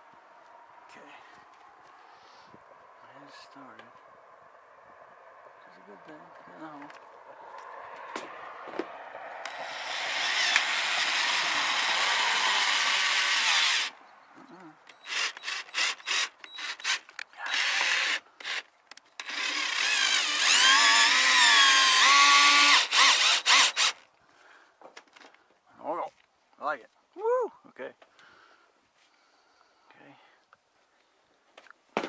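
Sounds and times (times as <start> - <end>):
cordless drill on steel panel: 9.4 - 14.0, 14.9 - 24.0.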